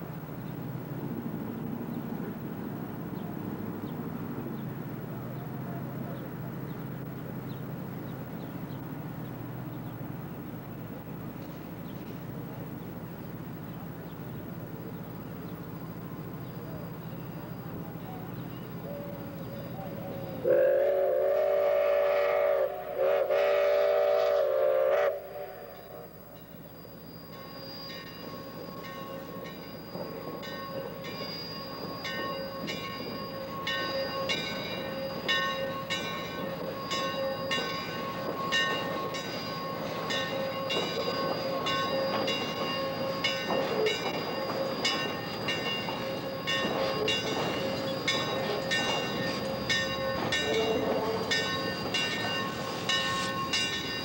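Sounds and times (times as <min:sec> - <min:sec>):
steam locomotive rumbling: 0:00.0 - 0:54.0
locomotive whistle blasts: 0:19.9 - 0:53.6
locomotive bell ringing: 0:25.6 - 0:54.0.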